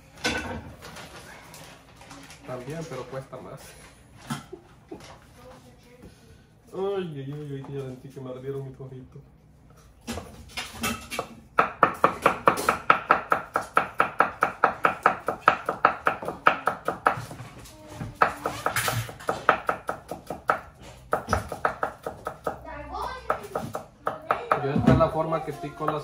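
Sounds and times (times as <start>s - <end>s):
knife chopping onion on wooden board: 11.2s - 22.6s, 23.3s - 25.2s, 25.8s - 26.0s.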